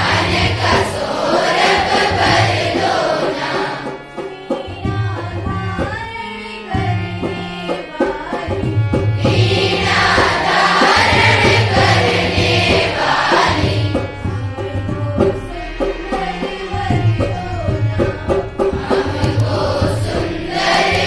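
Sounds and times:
girls singing together: 0:00.0 - 0:21.0
harmonium held notes: 0:00.0 - 0:21.0
hand drum strokes: 0:15.0 - 0:21.0.

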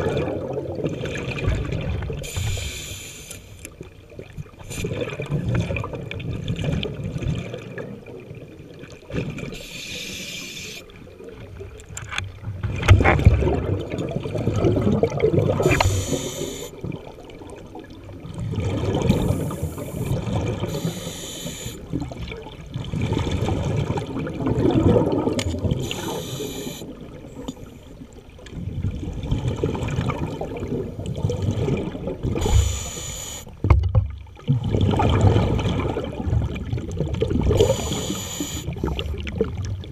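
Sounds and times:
exhaled air bubbling: 0:00.0 - 0:39.9
regulator inhale hiss: 0:02.2 - 0:03.6, 0:09.6 - 0:10.9, 0:15.6 - 0:16.8, 0:20.7 - 0:21.8, 0:25.8 - 0:26.9, 0:32.4 - 0:33.5, 0:37.6 - 0:39.1.

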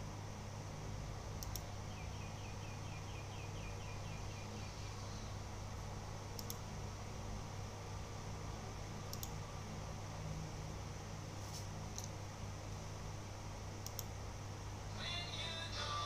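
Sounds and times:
steady low hum: 0:00.0 - 0:16.0
sharp clicks: 0:01.4 - 0:01.7, 0:06.3 - 0:06.6, 0:09.1 - 0:09.4, 0:13.8 - 0:14.1.

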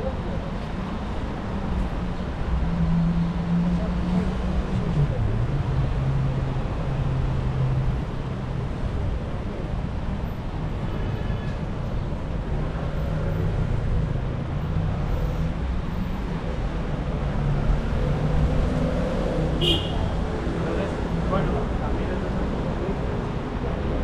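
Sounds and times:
vehicles passing: 0:11.6 - 0:24.0.

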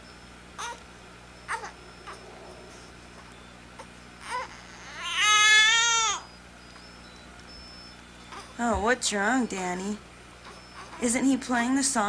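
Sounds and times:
baby wailing cry: 0:00.6 - 0:00.8, 0:01.5 - 0:02.4, 0:03.8 - 0:06.2
baby whimpering: 0:00.6 - 0:00.8, 0:01.5 - 0:06.2, 0:10.4 - 0:11.1.

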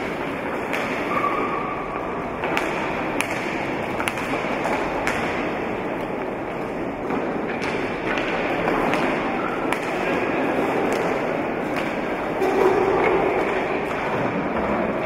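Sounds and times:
rolling skates: 0:00.0 - 0:15.0
sticks striking hard ball: 0:02.4 - 0:05.6, 0:07.5 - 0:12.6.

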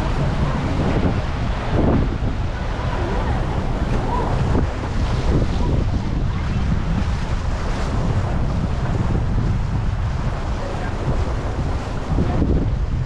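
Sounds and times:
river water rushing: 0:00.0 - 0:09.5
wind buffeting microphone: 0:00.0 - 0:13.0.

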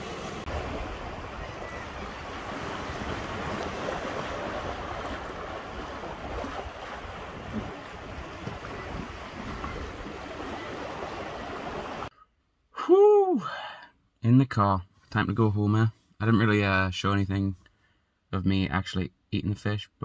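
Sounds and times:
sea waves washing against rocks: 0:00.0 - 0:12.1
wind rumbling on microphone: 0:00.0 - 0:12.1.

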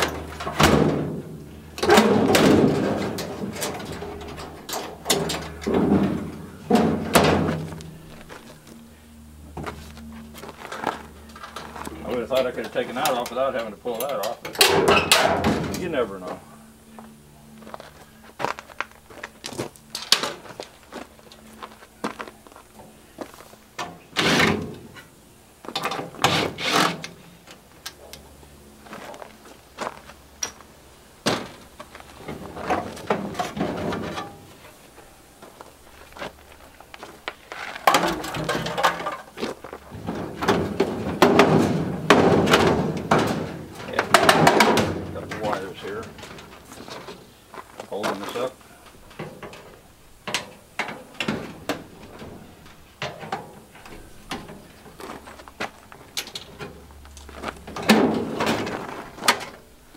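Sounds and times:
sheet metal panels knocking: 0:00.0 - 0:08.1, 0:37.9 - 0:47.1
metal panels rattling: 0:00.0 - 0:08.6, 0:10.5 - 0:16.4, 0:23.7 - 0:28.2, 0:31.2 - 0:34.8, 0:37.6 - 0:59.7.

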